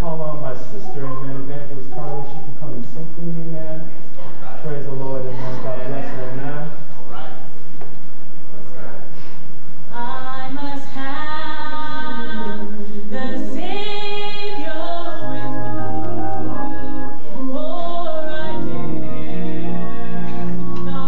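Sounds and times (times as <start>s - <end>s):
low sustained accompaniment notes: 0.0s - 7.2s, 10.3s - 21.0s
woman singing gospel: 9.9s - 21.0s.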